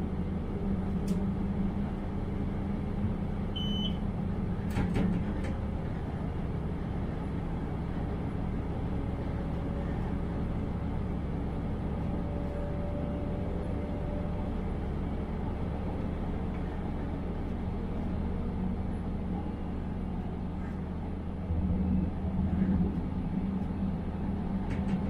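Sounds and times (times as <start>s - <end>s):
railcar engine and wheels rumbling: 0.0s - 25.0s
brief high beep: 3.6s - 4.0s.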